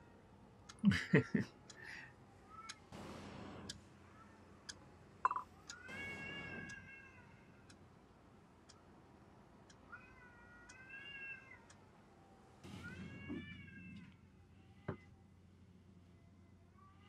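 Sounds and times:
cats yowling: 5.7 - 7.5, 9.9 - 11.8, 12.6 - 15.2.

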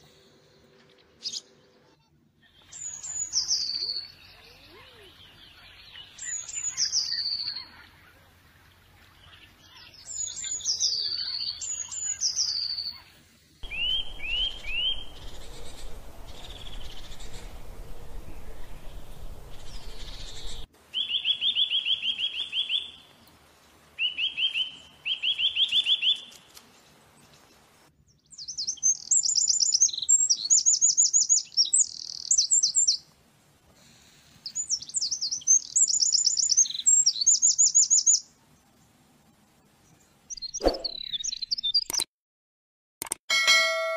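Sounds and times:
songbirds singing: 0.8 - 23.4, 24.0 - 33.2, 33.8 - 42.1
low rumble: 13.7 - 20.7.

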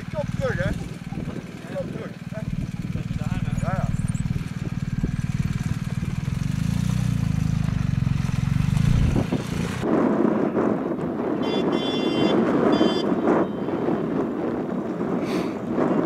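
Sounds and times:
motorcycle engine running: 0.0 - 10.5.

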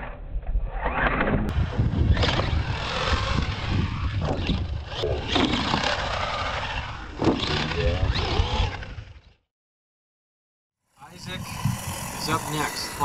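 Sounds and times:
radio-controlled truck running: 0.7 - 9.4, 10.9 - 13.0.

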